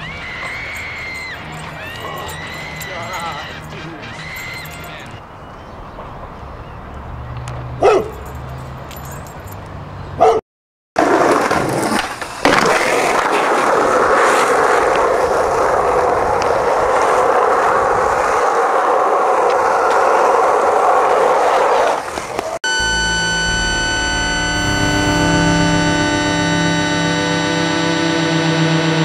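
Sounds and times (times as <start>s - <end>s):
skateboard wheels rolling on asphalt: 11.0s - 22.6s
short sharp sounds: 22.7s - 27.8s
low hum: 22.7s - 28.7s.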